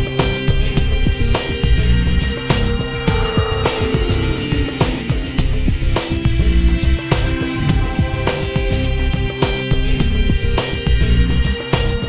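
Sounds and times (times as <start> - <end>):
sustained instrumental tones: 1.5 - 9.9
drum hits: 2.3 - 9.8.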